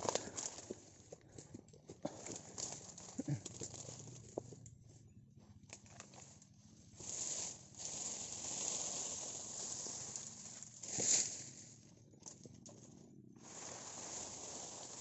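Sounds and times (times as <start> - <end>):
frond rustling through undergrowth: 0.0 - 1.2, 2.0 - 4.4, 5.7 - 15.0.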